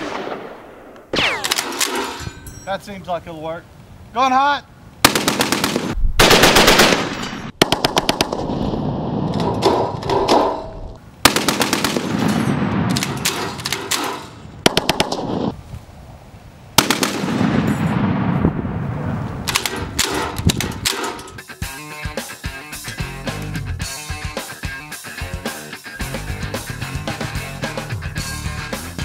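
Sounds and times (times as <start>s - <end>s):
gunfire echoing: 0.0s - 2.2s, 5.0s - 10.5s, 11.2s - 15.5s, 16.8s - 18.4s
machine gun automatic fire: 5.1s - 9.9s, 11.3s - 15.4s.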